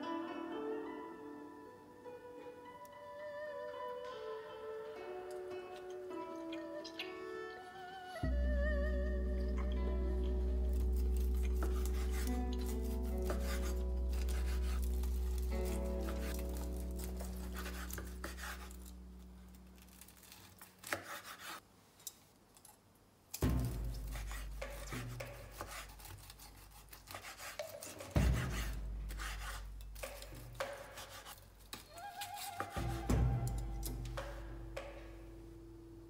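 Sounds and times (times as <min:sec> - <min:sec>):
background music: 0:00.0 - 0:20.4, 0:27.8 - 0:36.0
knife slicing on wooden board: 0:10.9 - 0:19.0, 0:20.0 - 0:21.6, 0:23.6 - 0:34.4.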